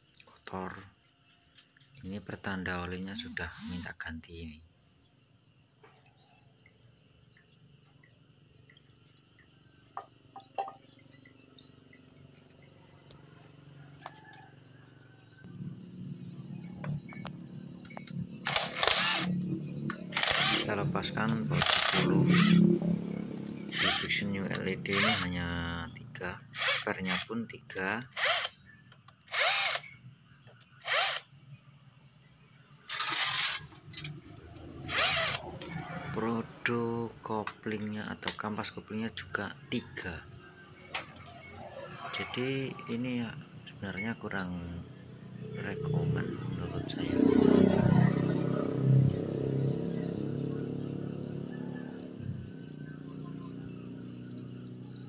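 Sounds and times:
impact wrench whining: 17.9 - 22.6, 23.6 - 24.2, 24.8 - 25.3, 26.5 - 27.3, 28.1 - 28.6, 29.3 - 30.0, 30.8 - 31.3, 32.9 - 35.6
metal parts clinking: 32.8 - 34.2, 40.8 - 42.4.

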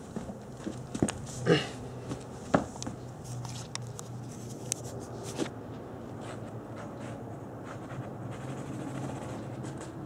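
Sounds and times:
steady low hum: 0.0 - 10.0
light clicks and rustles: 2.2 - 5.6.

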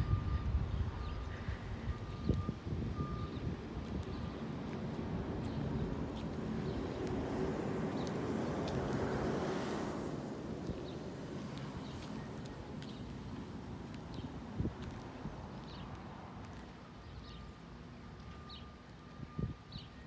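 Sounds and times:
wind on microphone: 0.0 - 15.7
vehicle passing by: 3.0 - 16.6.

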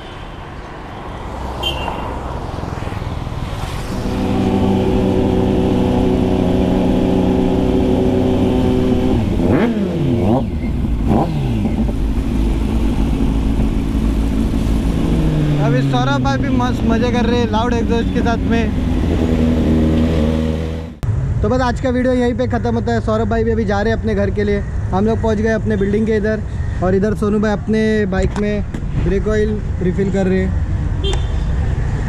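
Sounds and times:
motorcycle engine revving: 1.4 - 21.0
motorcycle engines running: 1.7 - 21.0.

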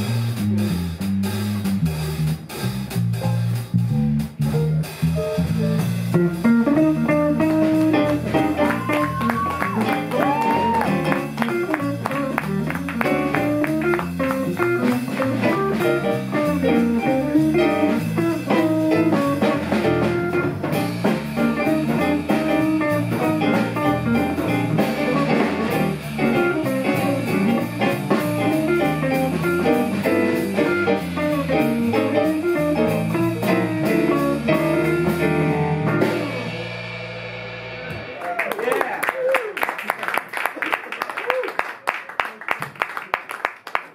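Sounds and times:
electric bass: 0.0 - 38.4
drum kit: 0.0 - 39.5
electric guitar: 5.8 - 38.4.

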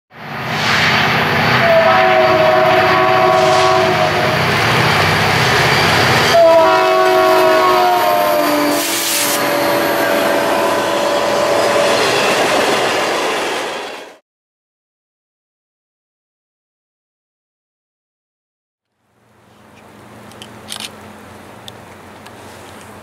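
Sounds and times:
locomotive rumble: 0.2 - 14.0, 19.0 - 23.0
locomotive air horn: 1.5 - 4.6, 6.2 - 12.0.

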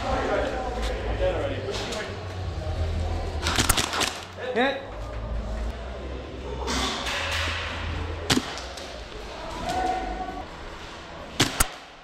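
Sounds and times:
airsoft gun shots: 11.4 - 12.0.

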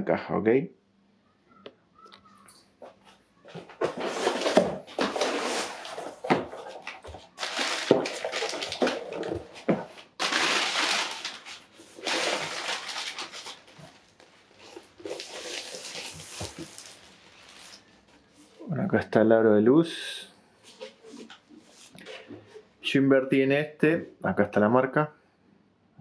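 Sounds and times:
packing paper rustling and crinkling: 3.0 - 18.6.

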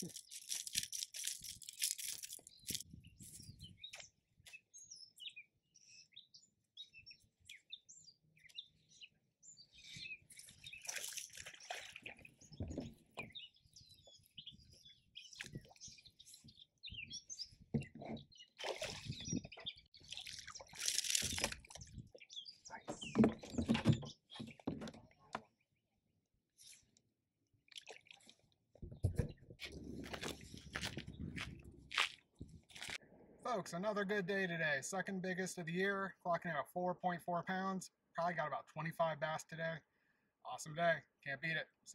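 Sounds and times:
birds chirping and singing: 0.0 - 24.8
fish splashing in water: 10.8 - 12.4, 18.6 - 19.3, 20.0 - 21.9.

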